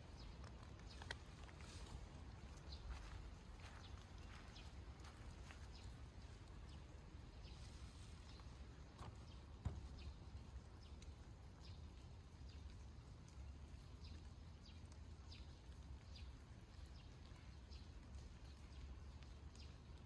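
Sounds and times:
soft low thump: 0:09.0 - 0:10.1.

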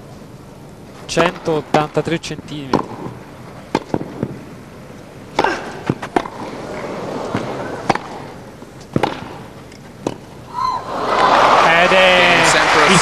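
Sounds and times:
tennis ball bounces: 0:02.6 - 0:04.4, 0:05.3 - 0:10.4
tennis racket hits: 0:05.3 - 0:10.3.

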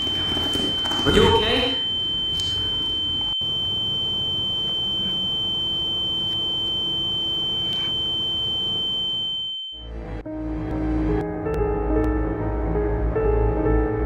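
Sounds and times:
high-pitched ringing tone: 0:00.0 - 0:09.9
soft piano music: 0:10.0 - 0:14.0.

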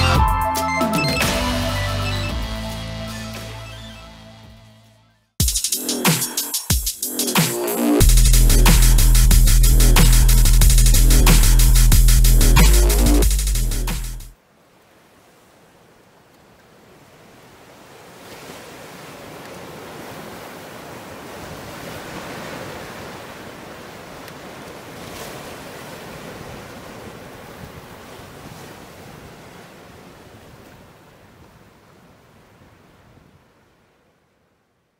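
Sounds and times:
sea surf washing on shore: 0:14.5 - 0:34.2.

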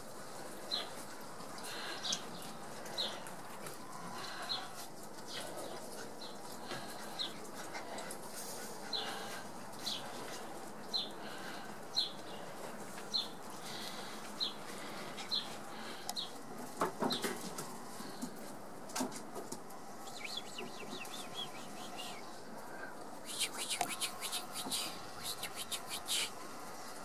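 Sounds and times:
bird chirping: 0:20.0 - 0:22.3, 0:23.3 - 0:26.3.

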